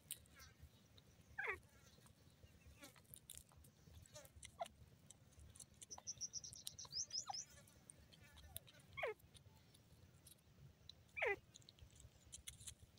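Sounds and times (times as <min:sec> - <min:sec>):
faint animal calls: 0:01.3 - 0:01.9, 0:08.2 - 0:09.4, 0:11.1 - 0:11.5
high chirps: 0:05.9 - 0:07.5.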